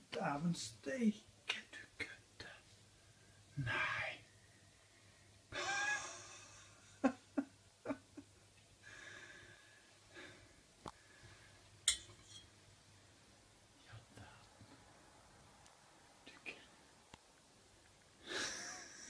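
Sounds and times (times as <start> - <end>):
man's wordless vocal sound: 3.6 - 4.3
breathing: 8.8 - 11.7.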